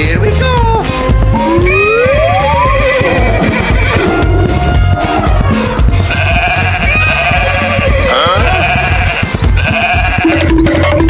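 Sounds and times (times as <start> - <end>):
goat bleating: 2.4 - 11.0.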